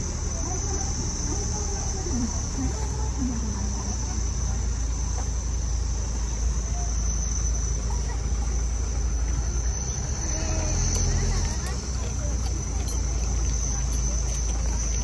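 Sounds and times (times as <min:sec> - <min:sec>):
fire engines diesel rumble: 0:00.0 - 0:15.0
high-pitched whine: 0:00.0 - 0:15.0.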